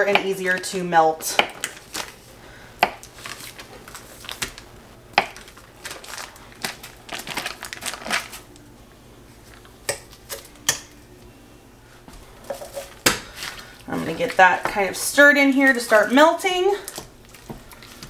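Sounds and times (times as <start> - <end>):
plastic crinkling: 1.6 - 2.3, 3.0 - 4.8, 5.4 - 8.7, 16.8 - 18.0.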